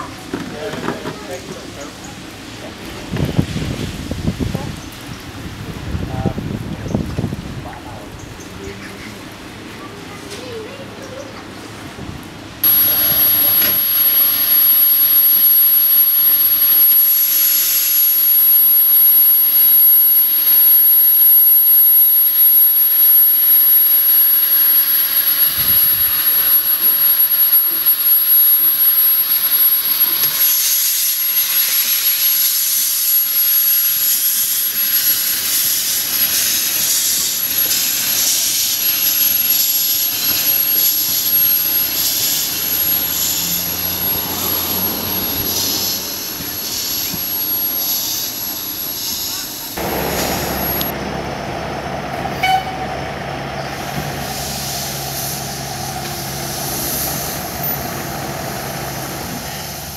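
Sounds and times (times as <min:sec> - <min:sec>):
steam locomotive hissing steam: 0:12.6 - 0:51.0, 0:52.3 - 0:59.9.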